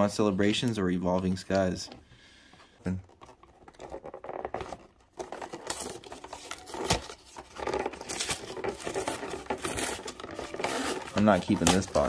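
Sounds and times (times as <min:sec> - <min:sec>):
cardboard scraping and rustling: 0:03.1 - 0:12.0.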